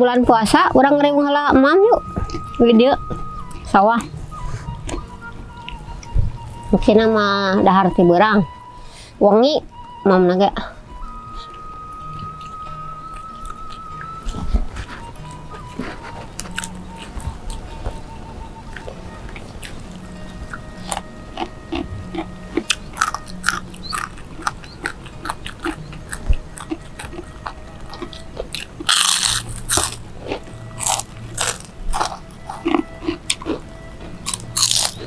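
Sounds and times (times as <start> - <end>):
crunchy food chewing: 3.2 - 6.8, 11.0 - 35.0.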